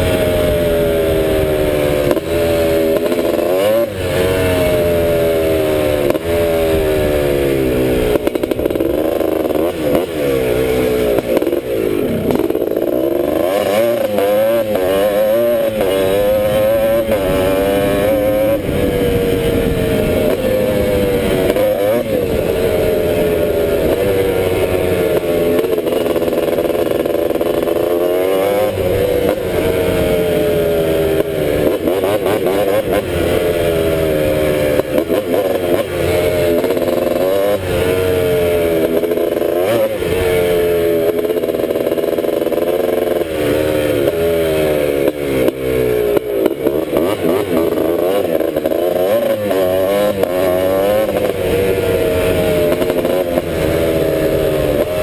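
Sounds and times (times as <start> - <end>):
two-stroke engine revving: 0.0 - 55.0.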